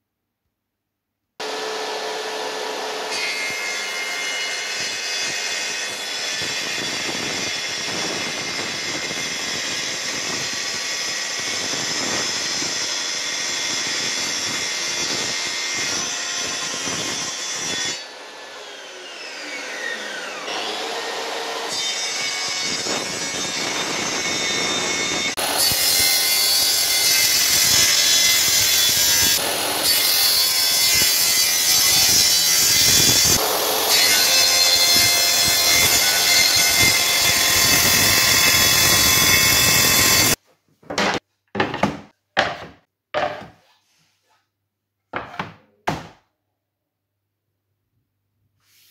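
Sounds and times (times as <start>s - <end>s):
circular saw cutting wood: 1.4s - 40.4s.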